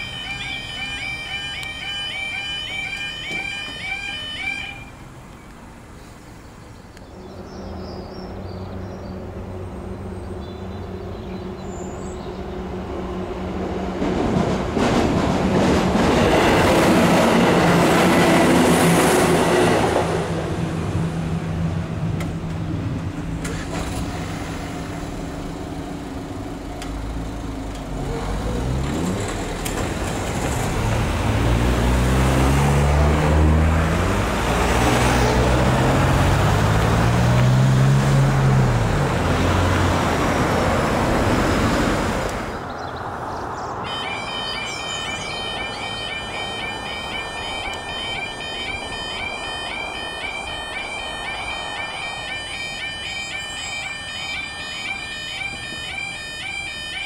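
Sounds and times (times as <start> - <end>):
train passing: 0.0 - 6.4, 12.2 - 57.0
car engines revving: 12.6 - 42.7.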